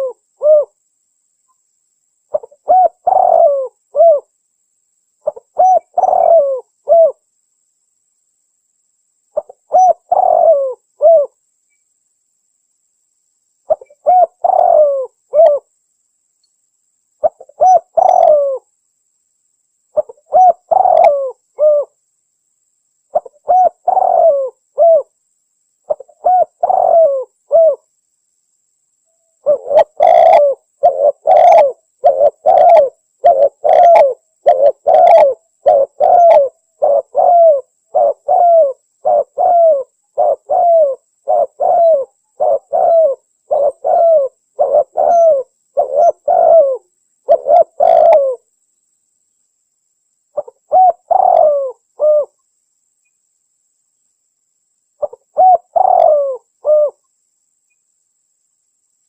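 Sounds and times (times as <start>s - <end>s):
dove cooing: 0.0s - 0.8s, 2.3s - 4.3s, 5.2s - 7.2s, 9.4s - 11.4s, 13.7s - 15.7s, 17.2s - 18.7s, 20.0s - 22.0s, 23.1s - 25.1s, 25.9s - 27.9s, 29.4s - 48.5s, 50.4s - 52.4s, 55.0s - 57.0s.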